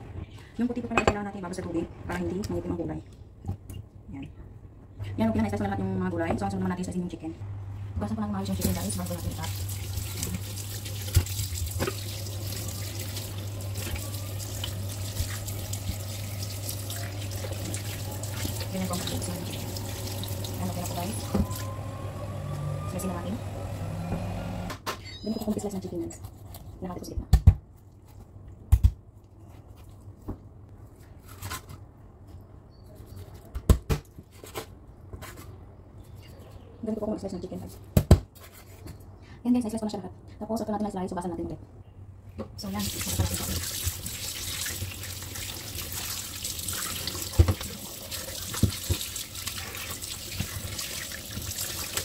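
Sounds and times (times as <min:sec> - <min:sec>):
tap water splashing: 0:09.4 - 0:20.6, 0:42.8 - 0:52.0.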